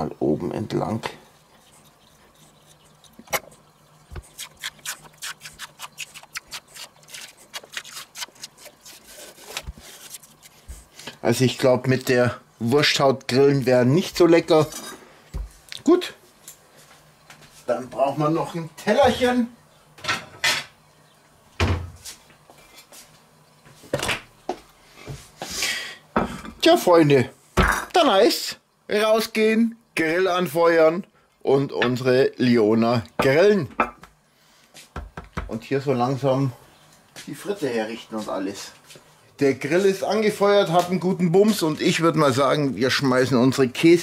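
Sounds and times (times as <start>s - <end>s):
sausage casing crackling and tearing: 1.6s - 10.7s.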